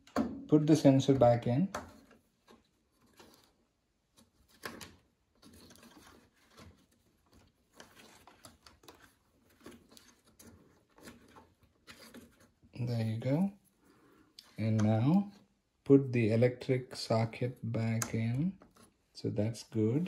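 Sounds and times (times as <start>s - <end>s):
plastic clicks and scrapes: 1.7s - 12.7s.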